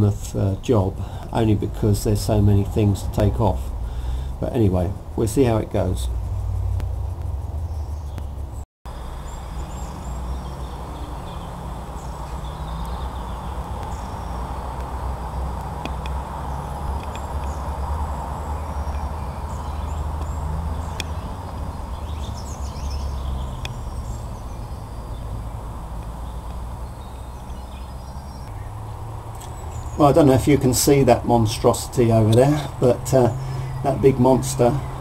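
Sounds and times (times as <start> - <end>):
low rumble: 1.7 - 30.0
birds chirping and singing: 7.5 - 35.0
sharp clicks: 15.6 - 16.2, 17.0 - 17.7, 20.2 - 21.6.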